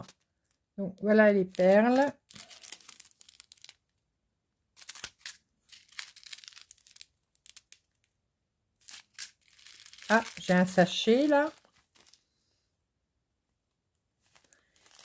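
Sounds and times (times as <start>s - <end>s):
plastic bags crinkling: 1.2s - 3.8s, 4.8s - 8.0s, 8.8s - 12.3s, 14.2s - 15.0s.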